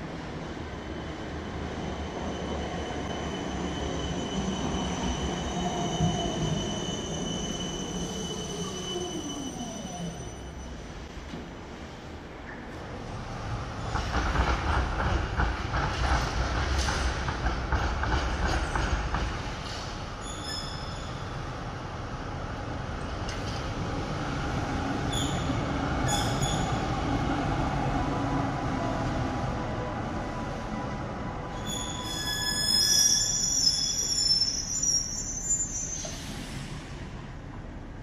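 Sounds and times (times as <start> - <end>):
tram wheels clattering over rails: 13.5 - 20.3, 23.2 - 28.4
high-pitched wheel squeals: 20.2 - 21.3, 31.5 - 36.3.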